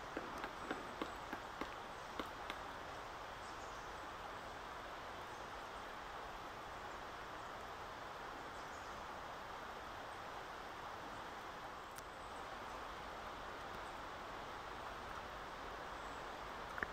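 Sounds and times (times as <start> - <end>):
woodpecker pecking: 0.0 - 2.8
steady background hiss: 0.0 - 16.9.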